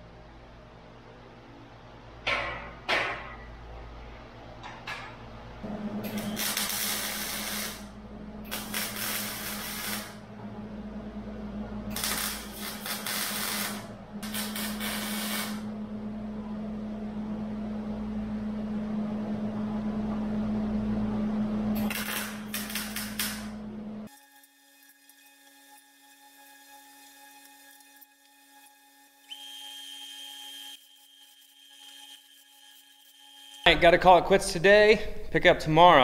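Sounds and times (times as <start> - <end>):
low hum: 0.0 - 24.1
welder arc crackling: 6.1 - 10.2, 11.9 - 15.7, 21.8 - 23.6.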